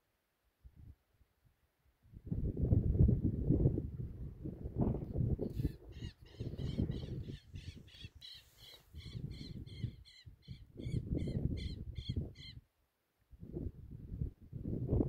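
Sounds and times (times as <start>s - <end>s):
wind gusting on microphone: 2.1s - 12.6s, 13.3s - 15.0s
bird calling: 6.0s - 12.6s.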